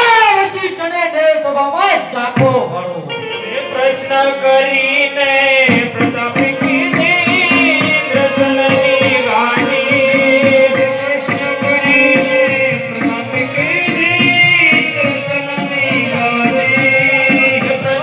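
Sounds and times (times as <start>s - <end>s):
person singing ornamented notes: 3.2s - 18.0s
hand drum strokes: 5.7s - 18.0s.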